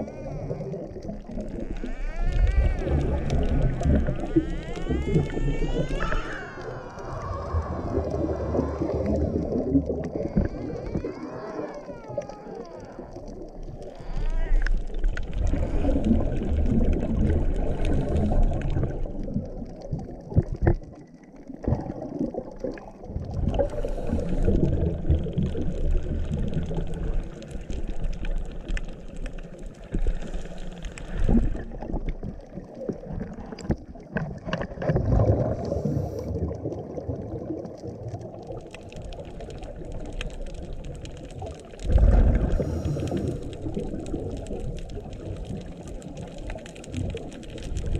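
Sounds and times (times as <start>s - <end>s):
diver exhaling bubbles underwater: 0.0s - 28.7s, 29.8s - 47.9s
low water noise: 0.0s - 47.9s.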